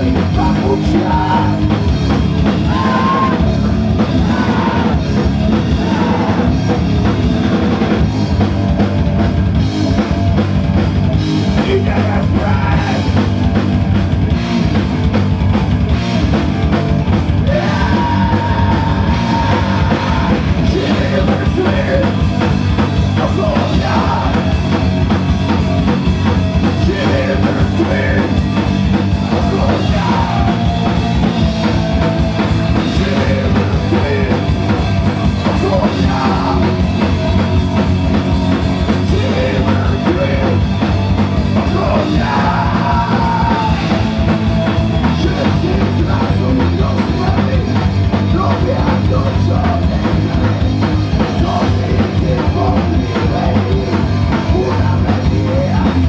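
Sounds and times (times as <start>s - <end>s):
person singing or shouting: 0.0s - 1.8s, 2.5s - 6.6s, 11.6s - 13.2s, 17.4s - 22.2s, 23.2s - 24.9s, 26.7s - 31.8s, 35.2s - 37.5s, 38.9s - 40.7s, 41.5s - 44.3s, 45.0s - 50.2s, 51.3s - 56.0s
metal band playing live: 0.0s - 56.0s
pounding drum kit: 0.0s - 56.0s.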